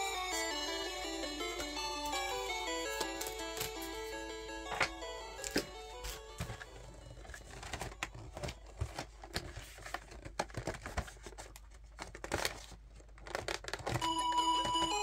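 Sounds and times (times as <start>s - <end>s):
background music with held notes: 0.0s - 9.0s, 14.0s - 15.0s
foil wrapper crinkling and tearing: 7.2s - 14.0s.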